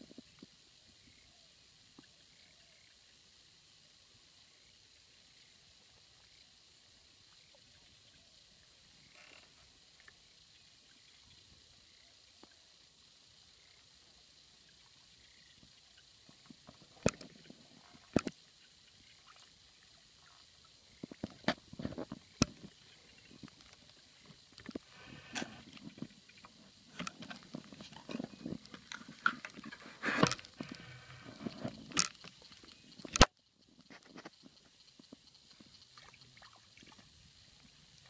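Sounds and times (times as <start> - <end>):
faint steady hiss: 0.0 - 38.0
water splashes: 16.2 - 33.2, 35.6 - 38.0.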